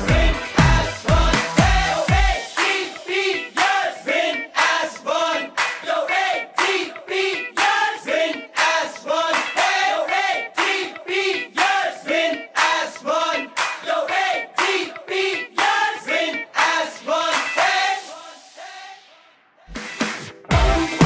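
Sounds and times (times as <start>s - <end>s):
crowd chanting: 0.0s - 19.7s
hand claps: 4.6s - 5.9s, 6.6s - 6.9s, 7.6s - 7.8s, 8.5s - 9.8s, 10.6s - 10.9s, 13.6s - 13.9s, 14.6s - 15.0s, 15.6s - 15.8s, 16.6s - 17.6s.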